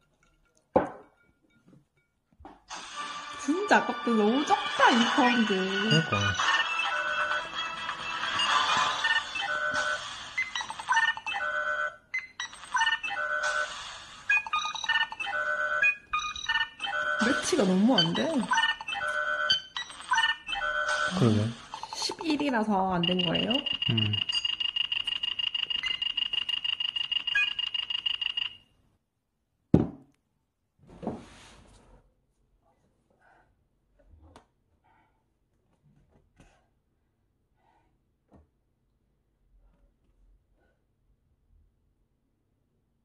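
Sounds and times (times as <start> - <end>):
synthesized game bleeps and chimes: 3.9 - 11.5, 14.4 - 22.3, 23.0 - 25.0
rapid electronic trilling beep: 8.1 - 11.4, 12.4 - 28.6.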